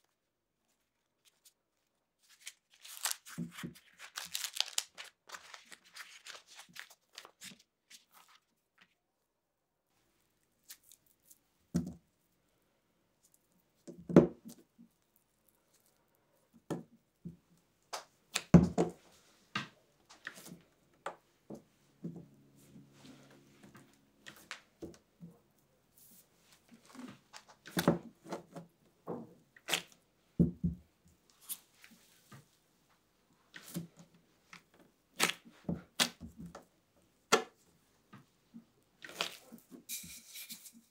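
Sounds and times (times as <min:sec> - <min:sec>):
dough tearing and crackling: 0:00.0 - 0:08.9, 0:29.6 - 0:30.0, 0:35.1 - 0:36.4, 0:39.0 - 0:39.7.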